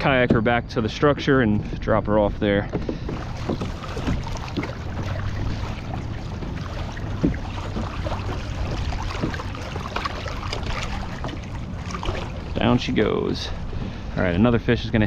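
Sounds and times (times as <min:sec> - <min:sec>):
steady low rumble: 0:00.0 - 0:15.0
water splashing against kayak hull: 0:02.6 - 0:15.0
sharp splash or knock: 0:03.1 - 0:12.4.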